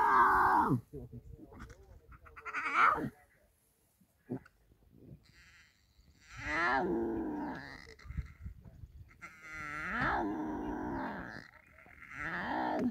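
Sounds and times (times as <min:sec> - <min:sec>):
lion cub calling: 0:02.1 - 0:03.1.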